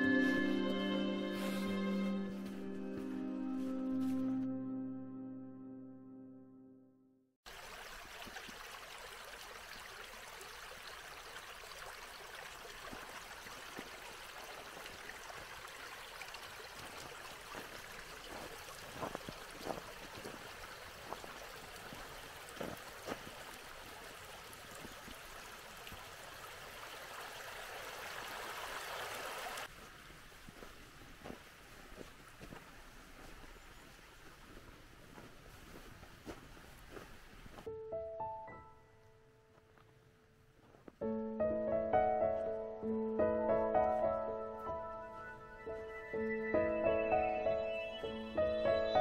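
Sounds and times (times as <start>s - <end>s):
brook trickling and burbling: 7.4s - 35.9s.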